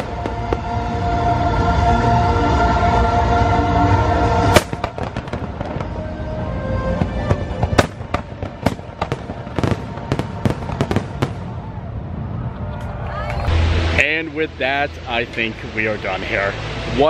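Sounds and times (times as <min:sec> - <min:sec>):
fireworks cracking and popping: 0:04.5 - 0:06.0, 0:07.0 - 0:11.5
loud firework bang: 0:04.5 - 0:06.0, 0:07.0 - 0:11.5.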